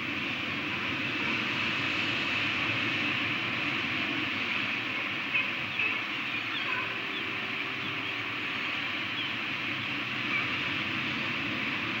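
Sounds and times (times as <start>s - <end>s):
steady rushing noise: 0.0s - 12.0s
falcon chicks cheeping: 5.0s - 9.4s.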